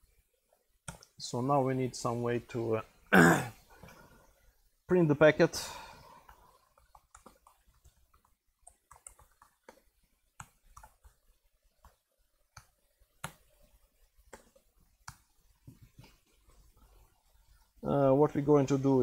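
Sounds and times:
faint laptop keystrokes: 6.2 - 11.2.

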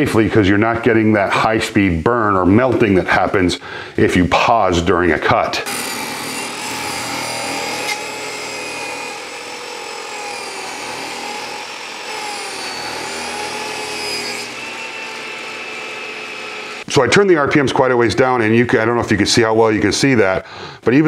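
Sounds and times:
saw cutting plastic: 5.6 - 16.9
table saw whine: 5.6 - 16.9.

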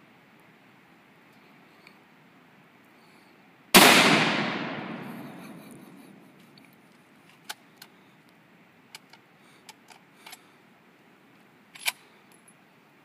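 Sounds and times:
rifle clicks and knocks: 11.8 - 12.5.

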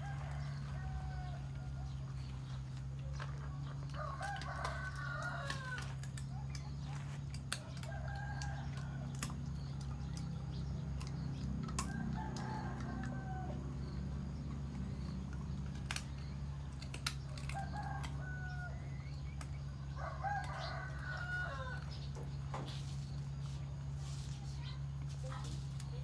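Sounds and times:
chickens clucking and crowing: 0.0 - 25.4.

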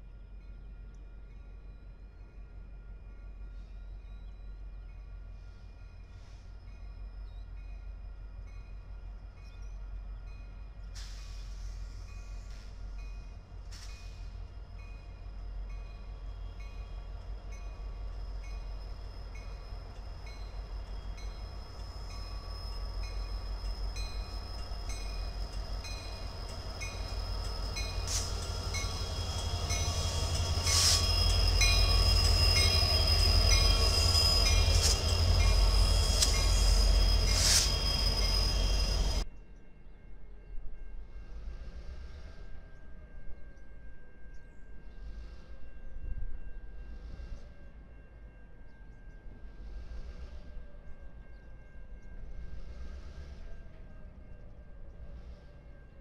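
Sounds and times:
diesel locomotive rumble: 0.0 - 39.2
steady high ring: 12.2 - 39.2.

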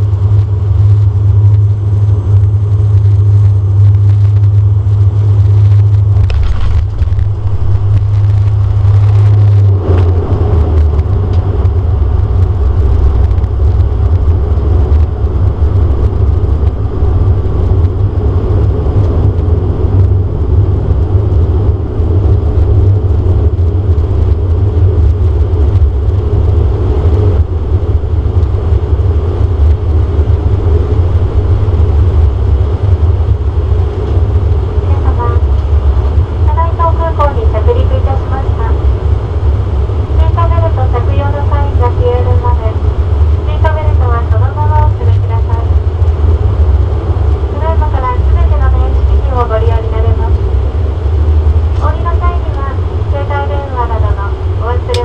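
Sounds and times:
turboprop engine drone: 0.0 - 55.0.

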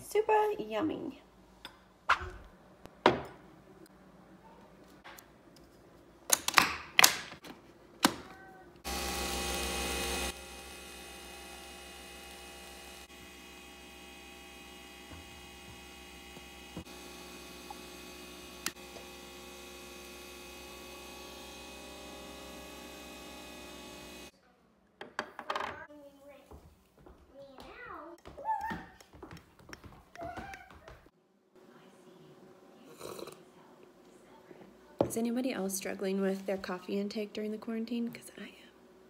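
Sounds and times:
coffee machine humming: 8.8 - 24.3.

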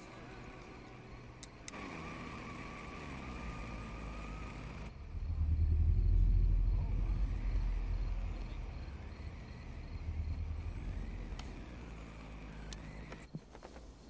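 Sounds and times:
steady background hum: 3.8 - 13.6
deep tornado rumble: 4.9 - 12.4.

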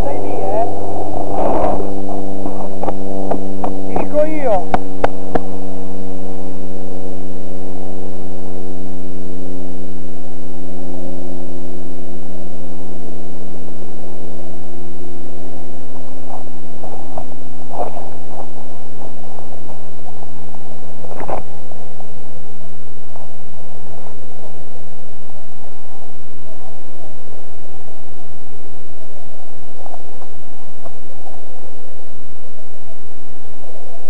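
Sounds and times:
electrical hum: 0.0 - 34.0.

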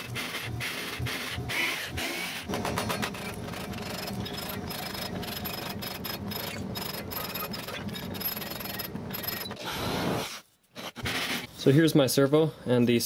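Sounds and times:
jigsaw cutting plywood: 0.0 - 10.3.

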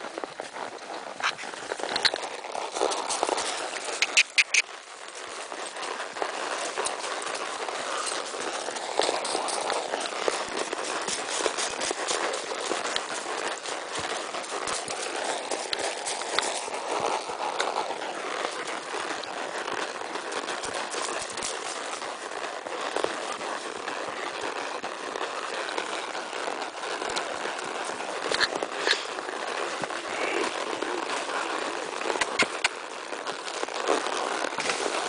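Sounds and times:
horse hoofbeats on dirt: 0.0 - 35.0
dry leaves crunching: 1.2 - 24.5
sharp clicks: 4.0 - 4.7, 32.1 - 32.8.

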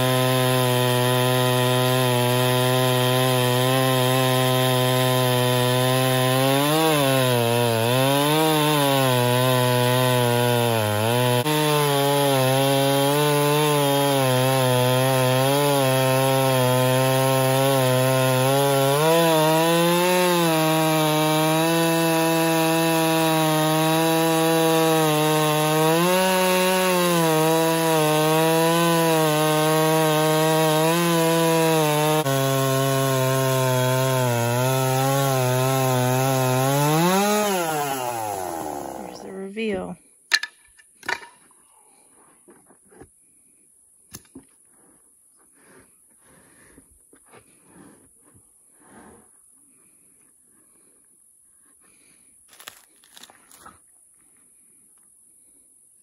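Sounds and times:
chainsaw cutting a log: 0.0 - 41.3, 52.5 - 53.6.

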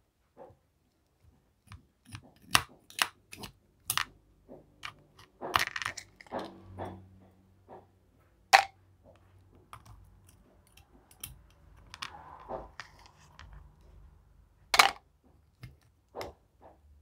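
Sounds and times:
plastic spoon scraping a plastic tray: 9.7 - 13.7.

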